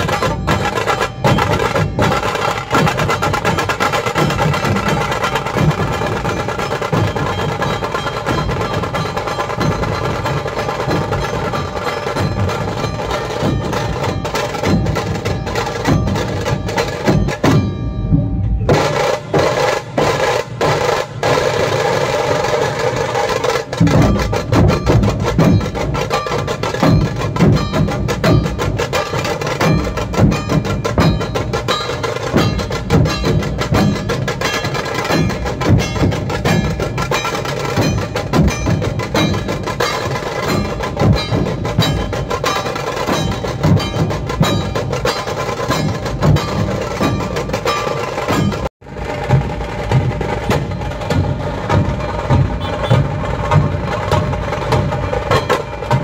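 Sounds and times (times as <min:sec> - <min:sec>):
barrel drums beaten: 0:00.0 - 0:56.0
snare drum rolls: 0:18.7 - 0:56.0.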